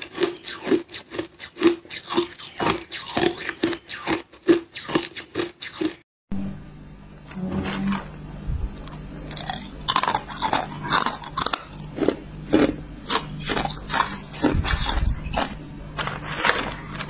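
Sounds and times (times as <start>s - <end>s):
ice being chewed: 0.0s - 6.0s, 8.9s - 17.0s
low steady hum: 6.3s - 17.0s.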